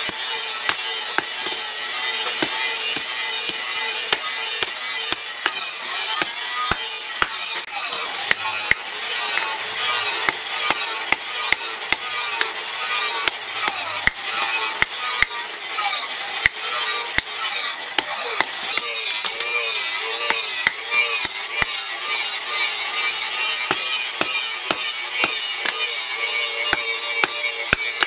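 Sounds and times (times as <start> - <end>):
hammer striking metal on anvil: 0.0 - 7.6, 8.3 - 15.4, 23.5 - 26.0, 26.7 - 28.0.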